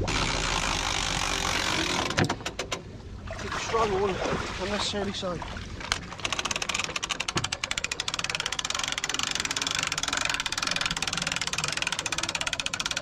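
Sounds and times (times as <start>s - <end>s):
winch ratchet clicking: 5.9s - 13.0s.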